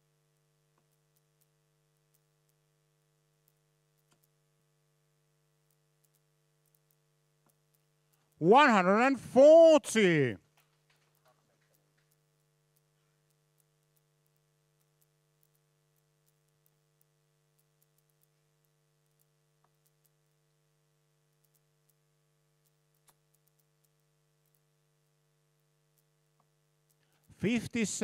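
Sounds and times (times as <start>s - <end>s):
low electrical hum: 0.0s - 28.0s
faint clicks: 3.4s - 4.4s, 5.6s - 8.4s, 10.5s - 20.4s, 21.3s - 22.0s, 22.6s - 25.2s.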